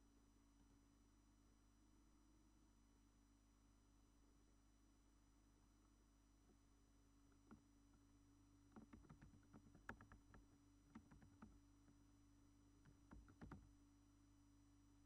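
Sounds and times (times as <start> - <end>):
faint electrical hum: 0.0 - 15.0
computer keyboard typing: 8.7 - 11.6, 12.8 - 13.7.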